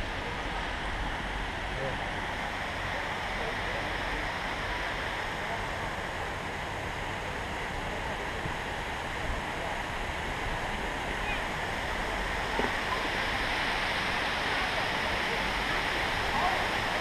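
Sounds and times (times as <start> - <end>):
waterfall pouring over rocks: 0.0 - 17.0.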